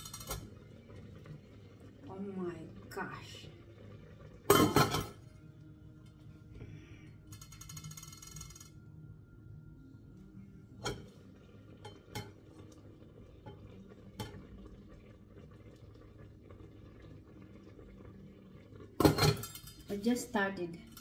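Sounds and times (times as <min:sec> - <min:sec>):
faint low hum: 0:00.2 - 0:21.0
metal pot lid clinking: 0:04.5 - 0:05.2, 0:19.0 - 0:20.0.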